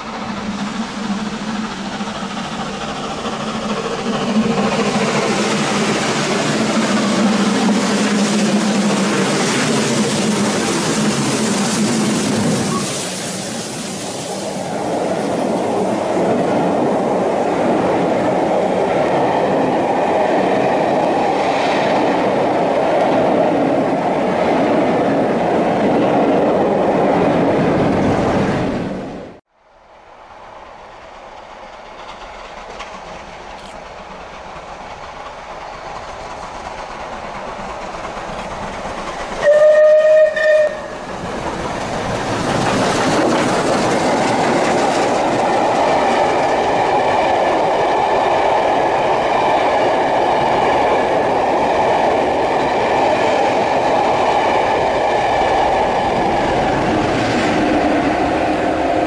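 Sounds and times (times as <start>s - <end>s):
steam train running past: 0.0s - 59.0s
steam whistle blasts: 39.4s - 41.0s.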